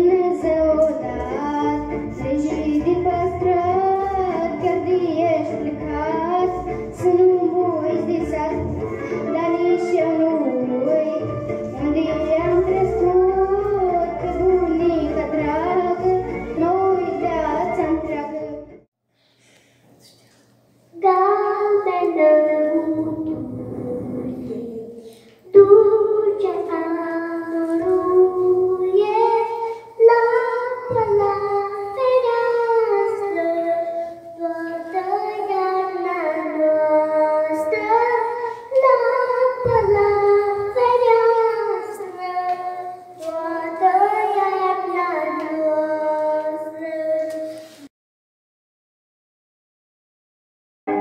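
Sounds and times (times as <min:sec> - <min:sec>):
girl singing into a microphone: 0:00.0 - 0:18.7, 0:20.9 - 0:47.8
girl breathing: 0:19.1 - 0:20.1, 0:38.4 - 0:38.7.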